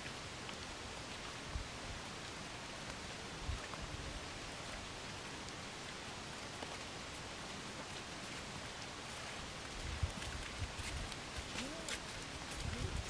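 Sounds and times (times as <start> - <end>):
wind buffeting microphone: 9.7 - 11.6, 12.4 - 13.0.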